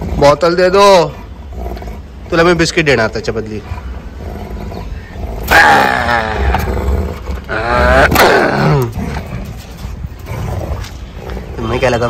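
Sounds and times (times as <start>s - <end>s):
dog growling playfully: 3.6s - 11.6s.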